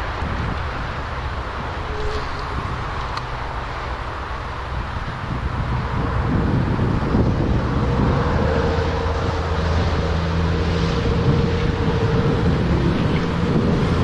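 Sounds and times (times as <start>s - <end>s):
low drone: 0.0s - 14.0s
wind rumbling on microphone: 0.0s - 14.0s.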